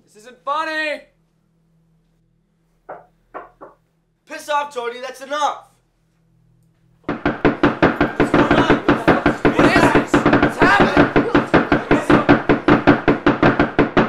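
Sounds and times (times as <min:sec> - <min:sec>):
rapid pounding on wooden door: 0:07.0 - 0:14.0.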